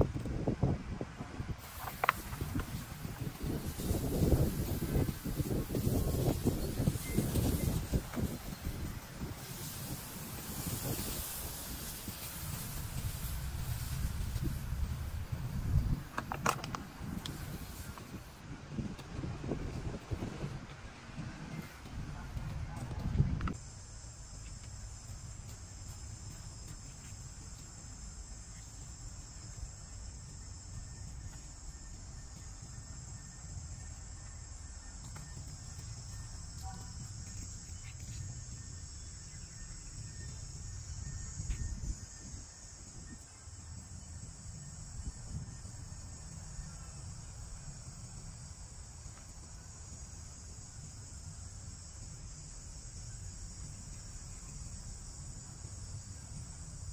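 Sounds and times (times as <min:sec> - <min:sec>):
insect chorus chirring: 0:01.5 - 0:20.2, 0:23.5 - 0:56.9.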